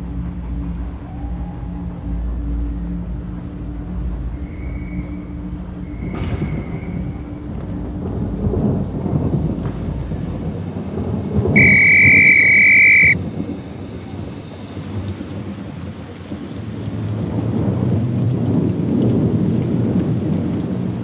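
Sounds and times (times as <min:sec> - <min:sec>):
low rumble of thunder: 0:06.1 - 0:11.7, 0:13.2 - 0:21.0
heavy rain pouring: 0:07.4 - 0:21.0
high-pitched whistle blast: 0:11.6 - 0:13.2.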